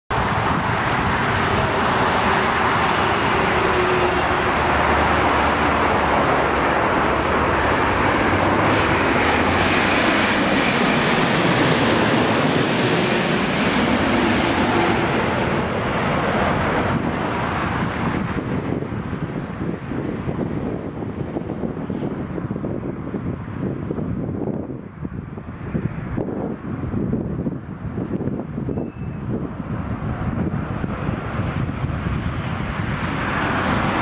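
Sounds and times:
jet airliner rumble overhead: 0.1 - 34.0.

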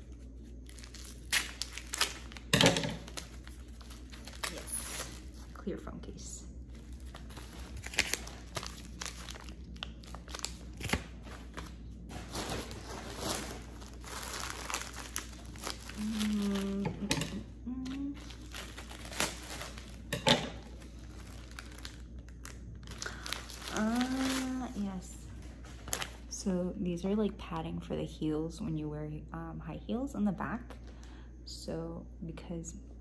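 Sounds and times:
plastic packaging crinkling: 0.0 - 5.7, 6.6 - 26.4
person humming: 15.9 - 18.4, 23.7 - 24.8.

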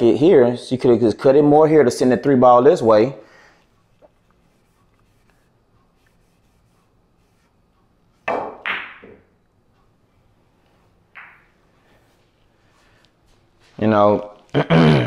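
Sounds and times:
billiard balls clacking: 8.2 - 9.4, 11.1 - 11.6
cue tip striking ball: 8.3 - 9.3, 11.1 - 11.6.

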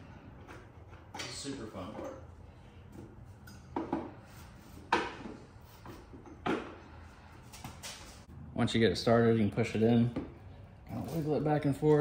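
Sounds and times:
metal clunks and knocks: 4.8 - 7.0.

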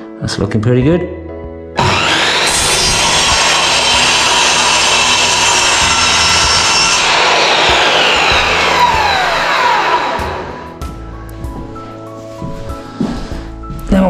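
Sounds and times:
mitre saw cutting wood: 1.8 - 10.8.

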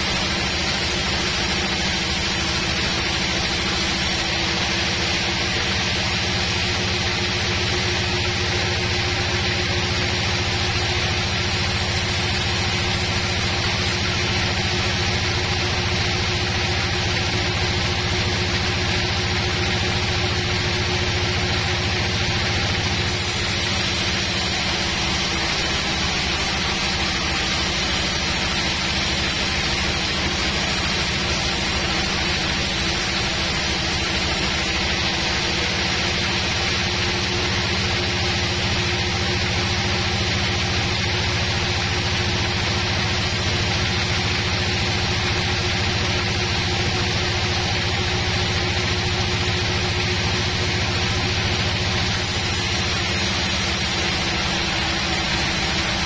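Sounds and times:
band saw cutting log: 0.0 - 4.6, 10.3 - 15.2, 22.2 - 34.9.

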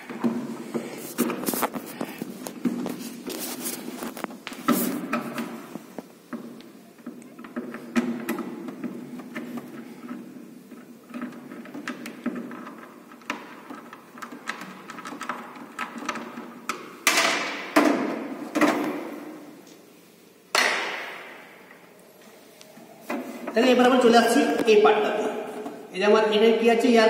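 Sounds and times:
sharp knocks of hard parts: 16.7 - 19.2, 20.5 - 21.4.

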